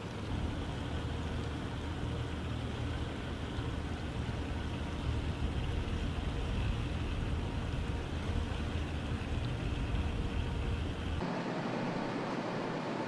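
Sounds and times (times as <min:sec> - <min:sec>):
faint steady hum: 0:00.0 - 0:13.0
outdoor ambient rumble and hiss: 0:00.0 - 0:13.0.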